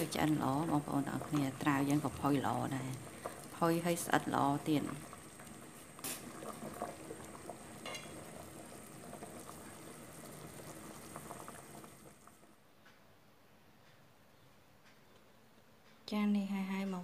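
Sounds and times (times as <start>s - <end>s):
soup bubbling at a simmer: 0.0s - 12.6s
ladle knocking against pot: 7.8s - 8.2s.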